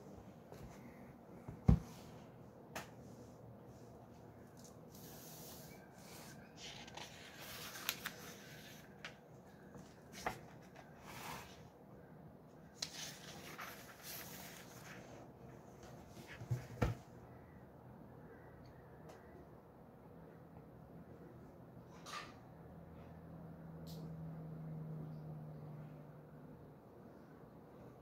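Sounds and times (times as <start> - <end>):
book pages turning: 4.5 - 11.6, 12.8 - 15.1
paper rustling: 6.2 - 11.6, 12.8 - 15.1.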